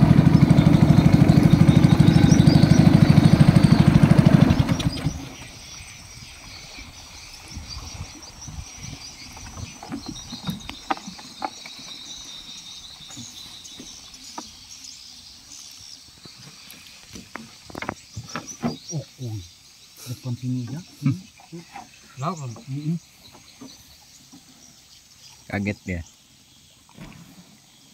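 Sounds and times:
knocks and clicks from boat: 0.0 - 5.8, 7.5 - 14.7, 16.2 - 19.1, 20.6 - 24.8
boat motor cutting off: 0.0 - 6.5
insects and frogs chorus: 0.0 - 27.9.

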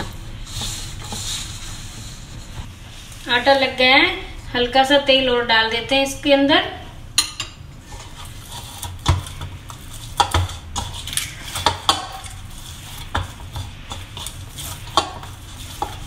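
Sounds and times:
dough kneaded in metal bowl: 0.0 - 3.8, 7.2 - 16.0.

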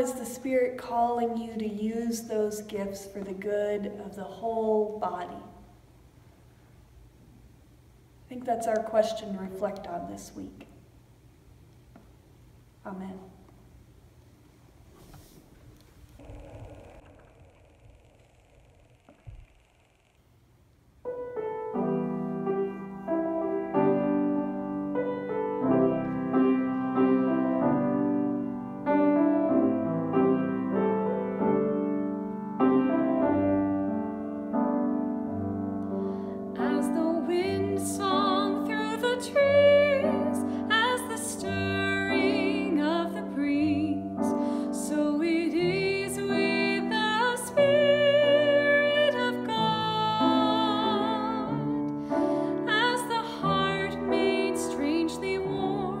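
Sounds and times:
slow piano playing: 21.0 - 56.0
person singing with vibrato: 36.5 - 56.0.

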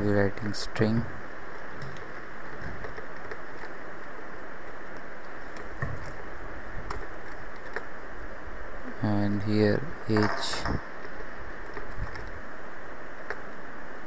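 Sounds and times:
microphone hiss: 0.0 - 14.0
faint keyboard clicks: 6.8 - 7.9, 11.6 - 12.4.

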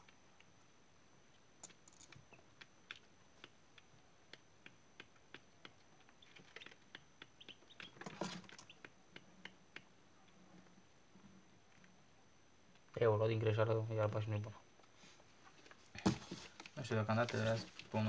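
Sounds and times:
chicks pecking on metal tray: 6.1 - 8.9
chicks scuffling: 7.4 - 8.9.

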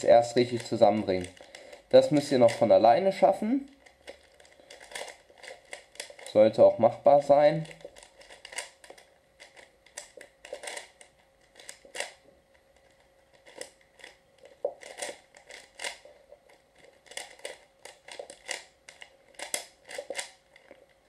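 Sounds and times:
plastic puzzle clicking and clacking: 3.7 - 6.3, 7.6 - 12.2, 13.3 - 20.9.

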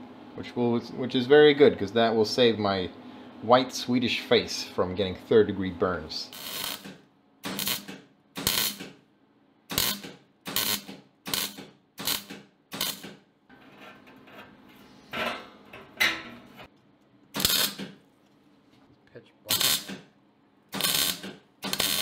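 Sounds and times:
welder arc crackling: 6.3 - 9.0, 9.8 - 13.2, 17.4 - 18.0, 19.5 - 20.0, 20.7 - 22.0.

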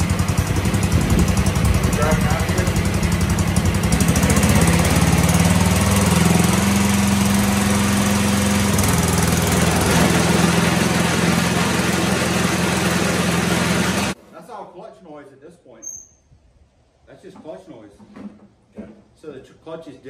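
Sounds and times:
lawn tractor engine running: 0.0 - 14.2.

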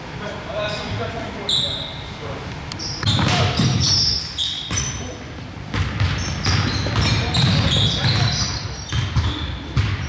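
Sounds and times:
sneakers squeaking: 0.7 - 10.0
basketball bouncing on floor: 3.0 - 3.9, 4.7 - 5.0, 5.7 - 10.0.

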